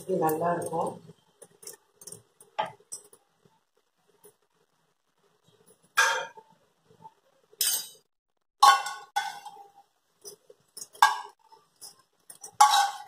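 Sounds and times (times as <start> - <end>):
utensils clanking on a pan: 7.6 - 8.0, 8.6 - 13.0.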